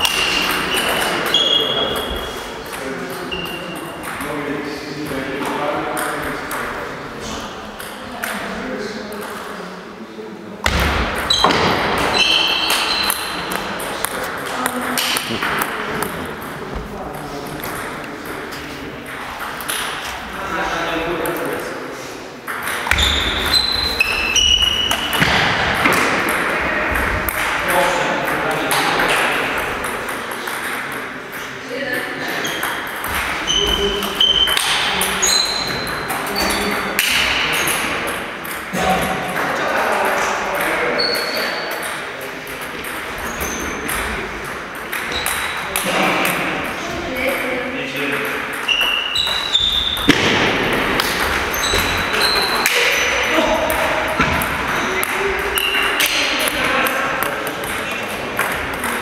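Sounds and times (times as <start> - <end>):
ping pong ball hits: 0.0 - 4.2, 22.5 - 27.6, 28.2 - 31.4, 32.5 - 39.6, 40.6 - 46.4, 50.0 - 59.0.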